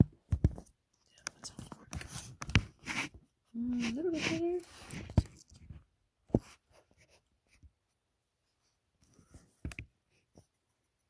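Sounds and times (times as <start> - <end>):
light scratching: 1.1 - 7.6.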